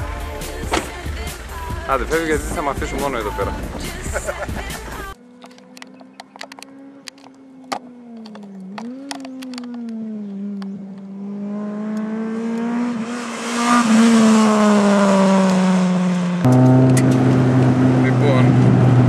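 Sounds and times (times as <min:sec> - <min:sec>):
car engine passing by: 0:00.7 - 0:19.0
sharp clicks: 0:05.4 - 0:11.1.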